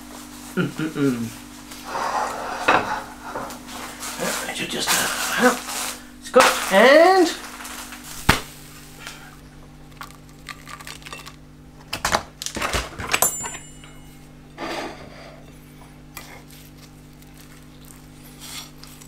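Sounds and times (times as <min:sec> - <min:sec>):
metal utensils clinking on plate: 0:13.2 - 0:14.1.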